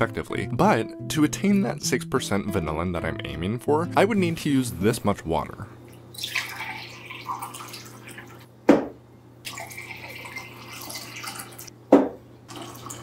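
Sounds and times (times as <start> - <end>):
water pouring into glass: 6.1 - 8.4, 9.5 - 11.7, 12.5 - 13.0.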